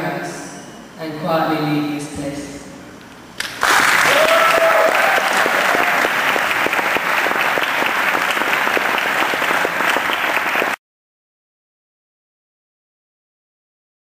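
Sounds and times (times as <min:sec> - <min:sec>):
audience applauding: 0:03.4 - 0:10.8.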